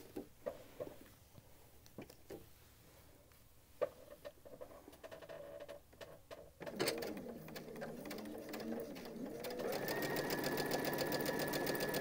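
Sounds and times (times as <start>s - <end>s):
sewing machine stitching: 6.6s - 12.0s.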